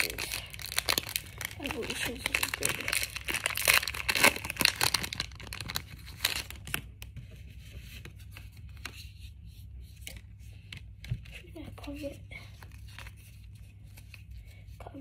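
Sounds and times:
foil wrapper tearing and crinkling: 0.0 - 6.9.

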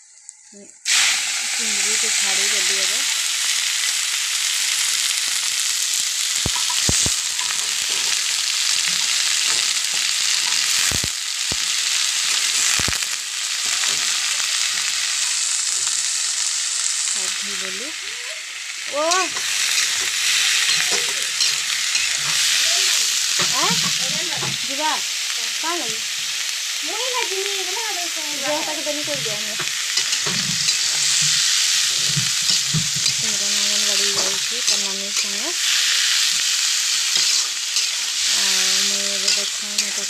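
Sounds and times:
prawns sizzling in hot oil: 0.0 - 40.0
metal spatula scraping a pan: 19.1 - 24.2, 29.6 - 40.0.

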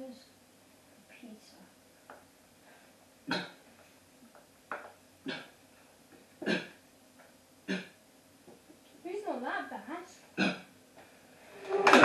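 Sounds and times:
person coughing and hacking: 3.3 - 3.6, 5.3 - 5.6, 6.4 - 6.8, 10.4 - 10.7.

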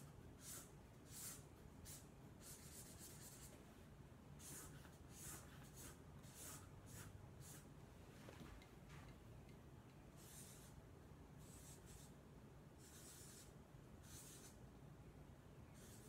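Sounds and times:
marker rubbing on paper: 0.0 - 3.6, 4.4 - 7.7, 10.2 - 10.8, 11.4 - 12.2, 12.8 - 14.6, 15.7 - 16.0.

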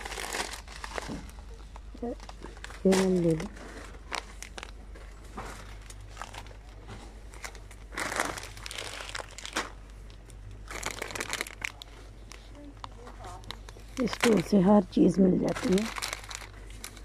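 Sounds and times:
low steady hum: 0.0 - 17.0
plastic bags crinkling: 0.0 - 17.0.

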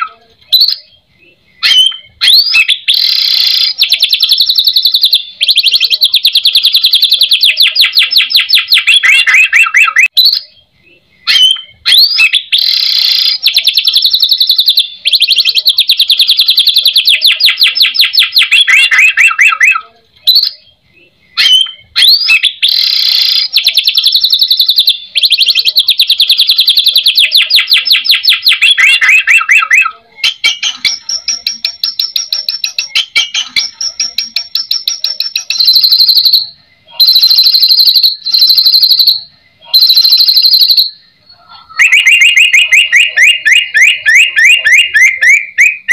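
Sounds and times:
bird singing fast repeated notes: 0.0 - 45.9
bird trill: 0.0 - 45.9.

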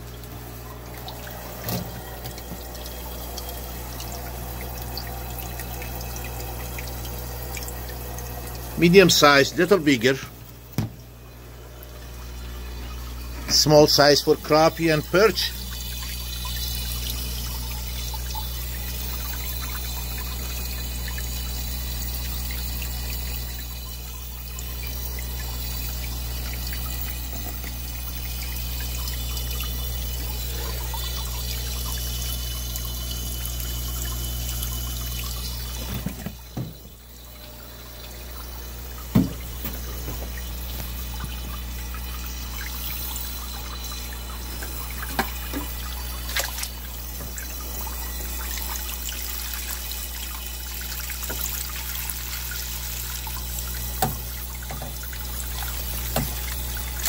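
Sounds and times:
water pouring and trickling: 0.0 - 57.0
knock: 39.2 - 39.4.

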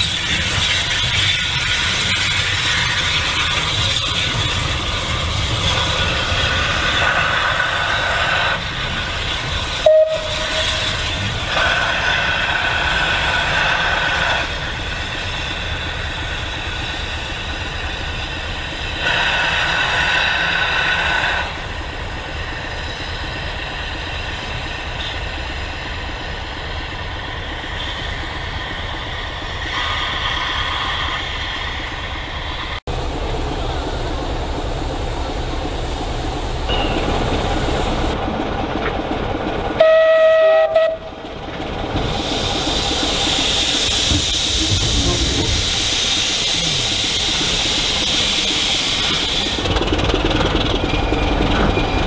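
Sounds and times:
train rumbling past: 0.0 - 52.0.

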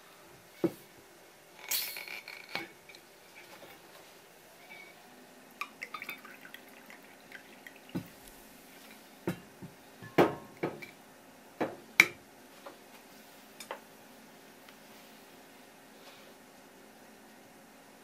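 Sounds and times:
drink pouring into cup: 5.6 - 9.0.

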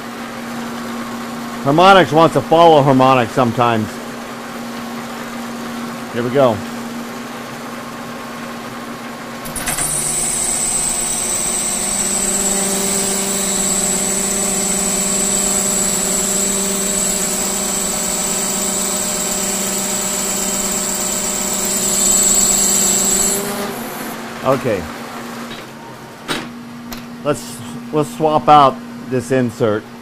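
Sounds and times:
lathe machine hum: 9.5 - 24.4
high-pitched cutting chatter: 9.9 - 24.0.

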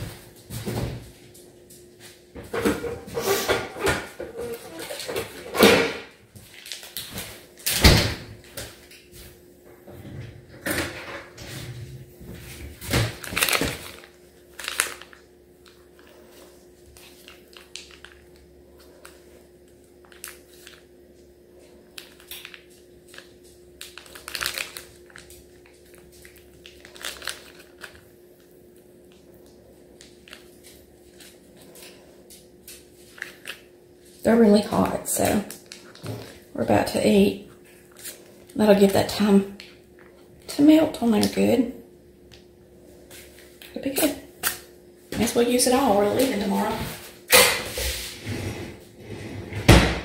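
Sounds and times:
steady low hum: 0.0 - 50.0
kitchen knocks and clatters: 2.4 - 6.2, 9.8 - 11.9.

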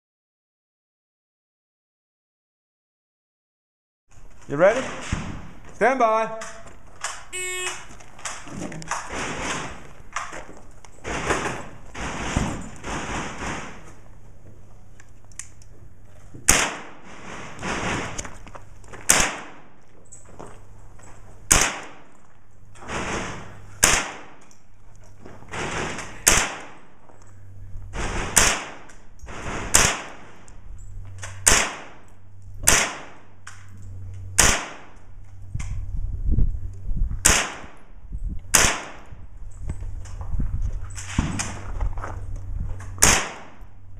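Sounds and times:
rifle single shots: 16.5 - 17.0, 19.0 - 19.8, 21.5 - 22.1, 23.2 - 24.4, 25.5 - 26.9, 28.0 - 28.9, 29.7 - 30.4, 31.2 - 33.4, 34.4 - 35.0, 37.2 - 37.8, 38.5 - 39.0, 43.0 - 43.7.

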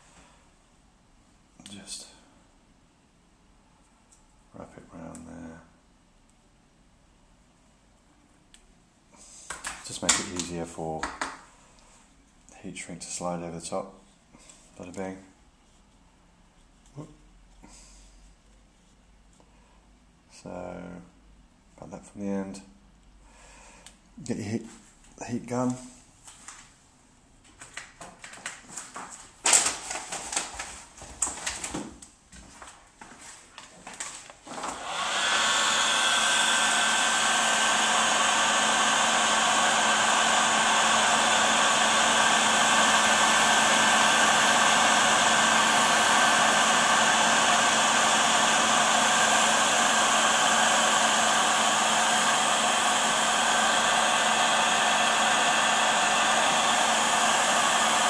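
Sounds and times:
heat gun blowing air: 34.5 - 58.0.

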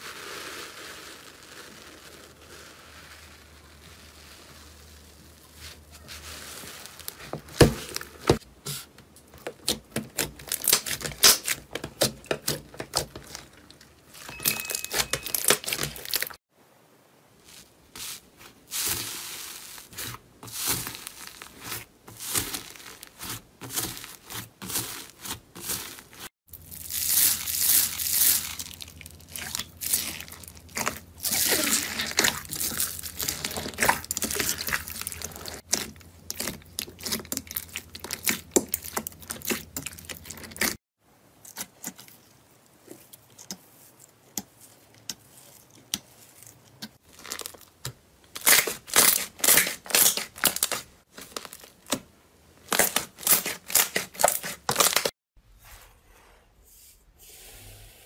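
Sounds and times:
foam bead slime crunching: 0.0 - 8.4, 17.4 - 40.8, 44.4 - 52.0, 52.6 - 55.1.

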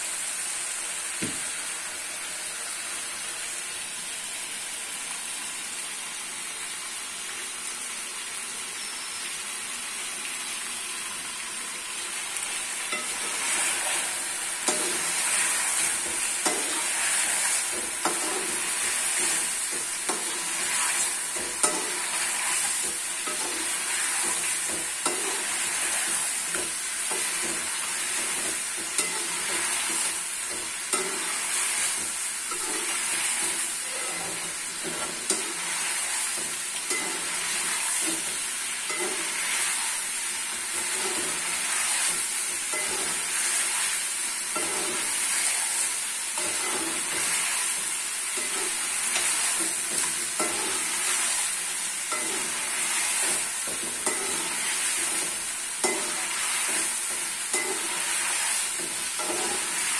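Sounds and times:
chicken sizzling in oil: 0.0 - 59.9
spoon stirring in pan: 12.9 - 59.9.

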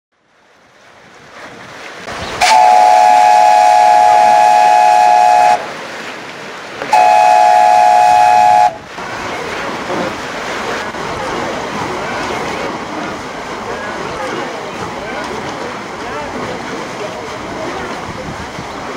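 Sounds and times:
steam whistle blasts: 2.4 - 5.6, 6.9 - 8.8.

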